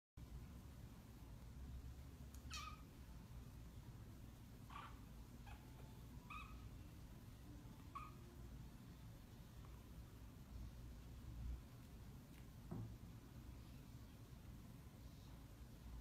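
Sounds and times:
low steady hum: 0:00.2 - 0:16.0
kittens mewing: 0:04.6 - 0:06.7.

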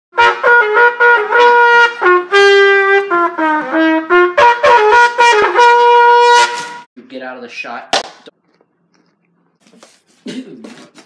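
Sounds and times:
brass instrument melody: 0:00.1 - 0:06.9.

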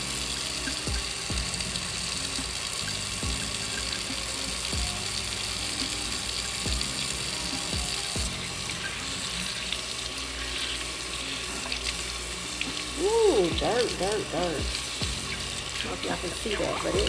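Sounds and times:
soft background music: 0:00.0 - 0:17.0
tap running into a sink: 0:00.6 - 0:09.9.

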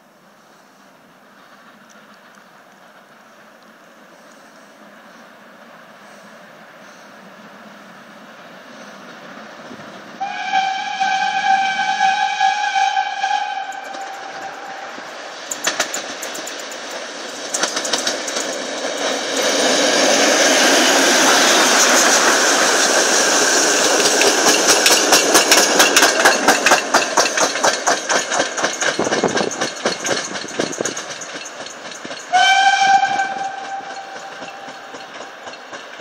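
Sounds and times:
steam engine rushing: 0:00.4 - 0:36.0
train wheel clicks: 0:01.4 - 0:04.4, 0:13.4 - 0:36.0
steam whistle: 0:10.2 - 0:15.0, 0:32.3 - 0:34.7.

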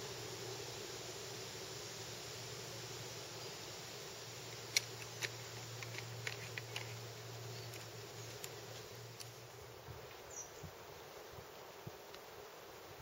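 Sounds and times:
background hiss: 0:00.0 - 0:13.0
small clicks and ticks: 0:04.5 - 0:09.4.

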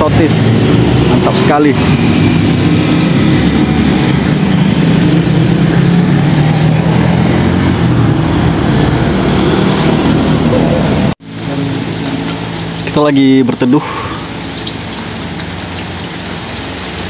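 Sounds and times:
motorcycles passing: 0:00.0 - 0:12.8
low engine hum: 0:00.5 - 0:12.9.

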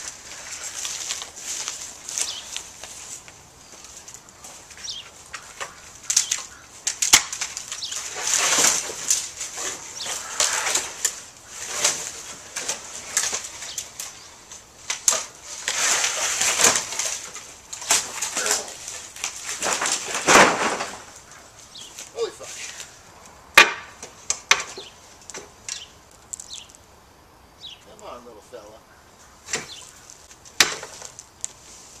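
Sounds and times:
twigs snapping: 0:00.0 - 0:26.8, 0:29.5 - 0:31.6
dry twigs rustling and crackling: 0:00.0 - 0:27.0, 0:28.9 - 0:32.0.

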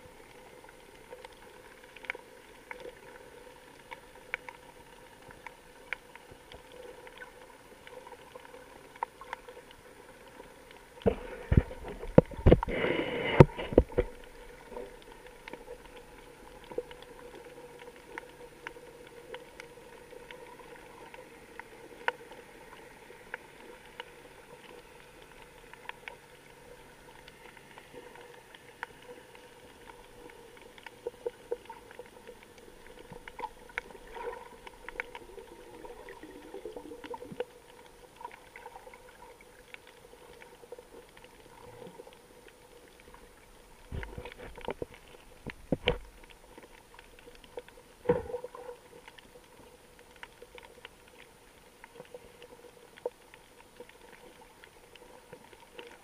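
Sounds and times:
faint underwater clicks and crackles: 0:00.0 - 0:56.0
underwater bubbling: 0:00.0 - 0:56.0.

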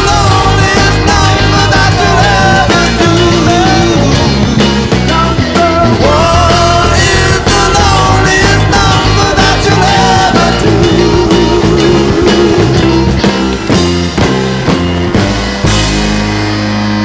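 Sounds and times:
guitar: 0:00.0 - 0:17.0
loud rock music: 0:00.0 - 0:17.0
steady drum beat: 0:00.0 - 0:17.0.

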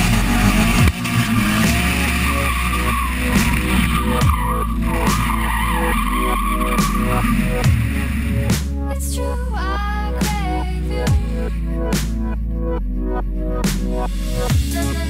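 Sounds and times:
tyres squealing: 0:00.0 - 0:08.5
car engine at high revs: 0:00.0 - 0:08.7.

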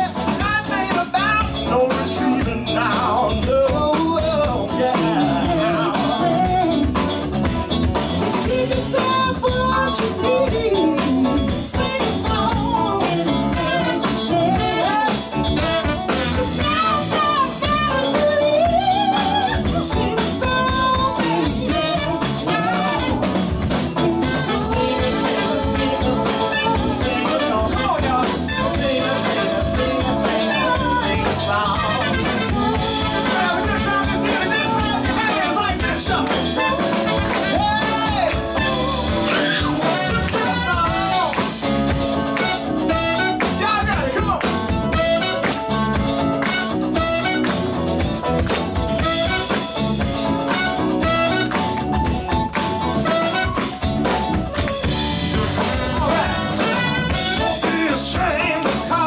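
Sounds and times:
person singing: 0:00.0 - 0:07.2, 0:08.3 - 0:41.6, 0:54.8 - 0:59.0
live band playing: 0:00.0 - 0:59.0.

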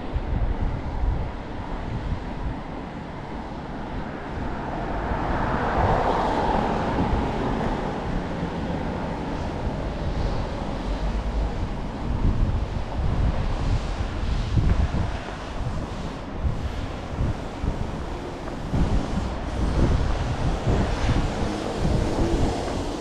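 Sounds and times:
street traffic: 0:00.0 - 0:23.0
wind buffeting microphone: 0:00.0 - 0:23.0
vehicle passing: 0:04.4 - 0:12.6.

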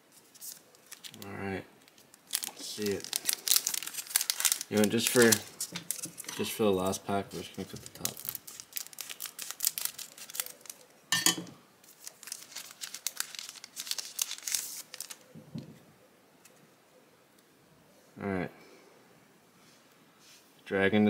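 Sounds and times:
foil wrapper crinkling: 0:00.1 - 0:10.9, 0:11.8 - 0:15.3
scissors snipping foil: 0:01.8 - 0:06.6, 0:07.5 - 0:10.8.

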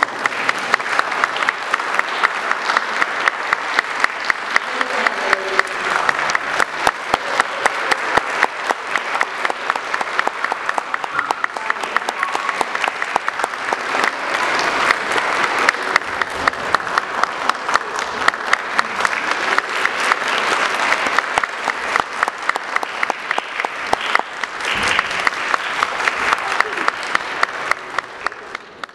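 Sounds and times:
audience applauding: 0:00.0 - 0:28.9
loud single claps: 0:21.1 - 0:27.8.

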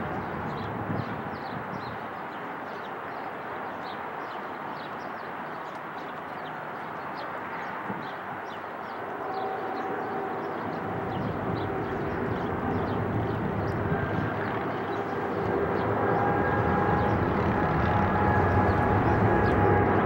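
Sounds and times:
jet airliner rumble: 0:09.0 - 0:20.0.

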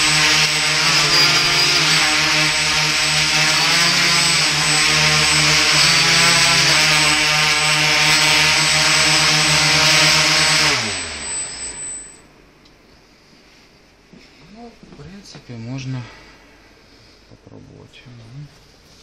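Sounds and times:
drone motors whirring: 0:00.0 - 0:12.2
high whine: 0:00.0 - 0:12.8.

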